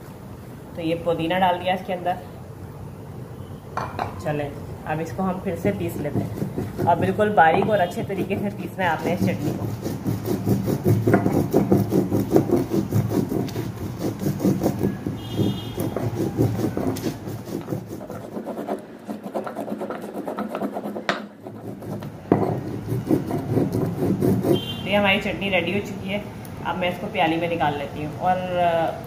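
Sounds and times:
stone grinding on stone: 5.6s - 24.7s.

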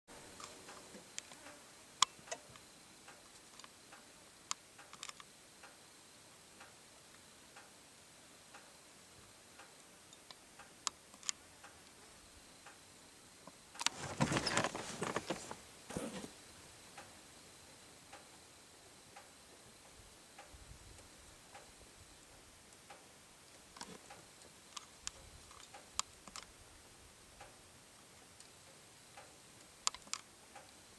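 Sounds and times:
camera handling rustling and knocking: 13.8s - 16.3s.

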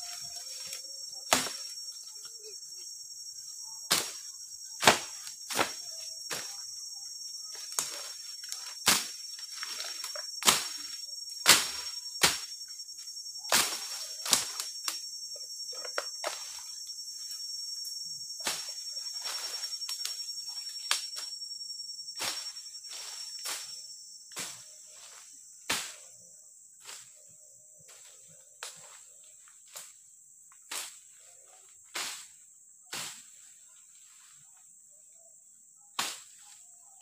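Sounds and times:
leaves and stems rustling: 0.0s - 2.4s, 7.5s - 12.5s
insects droning: 0.0s - 37.0s
machete chopping undergrowth: 0.6s - 1.7s, 3.9s - 4.2s, 4.8s - 6.6s, 7.5s - 12.6s, 13.5s - 15.0s, 22.2s - 26.1s, 31.9s - 32.3s, 36.0s - 36.4s.

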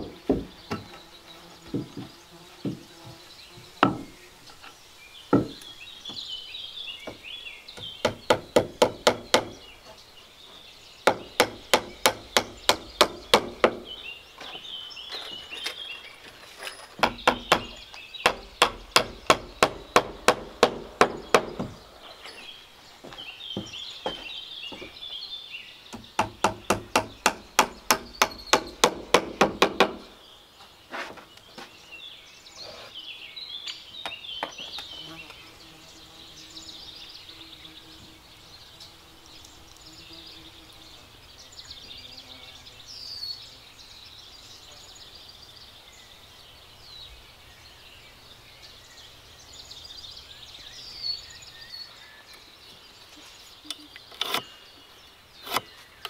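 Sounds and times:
hammer striking wood: 0.0s - 0.9s, 3.8s - 4.1s, 5.3s - 5.6s, 7.8s - 9.6s, 11.0s - 13.9s, 17.0s - 21.8s, 25.9s - 30.1s.

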